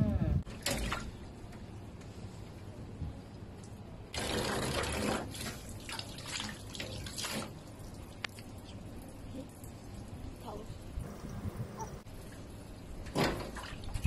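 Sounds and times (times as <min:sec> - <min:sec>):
water splashing in a steel sink: 0:00.5 - 0:01.2, 0:04.2 - 0:08.8.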